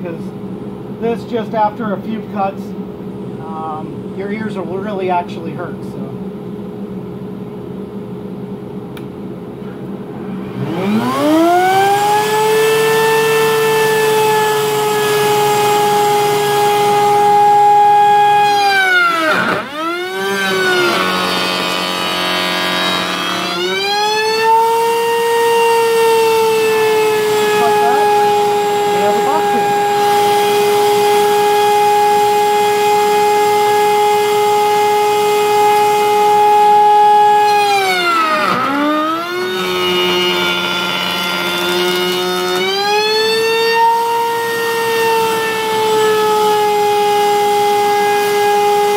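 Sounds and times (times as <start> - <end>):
wood router high whine: 10.2 - 48.9.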